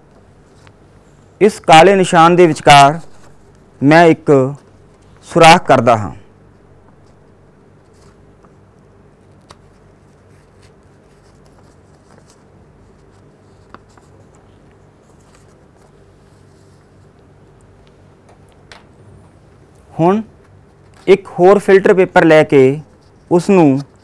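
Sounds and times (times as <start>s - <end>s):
steady low hum: 0.0s - 24.0s
paper rustling: 0.1s - 1.2s, 2.6s - 3.7s, 6.9s - 17.2s, 20.4s - 24.0s.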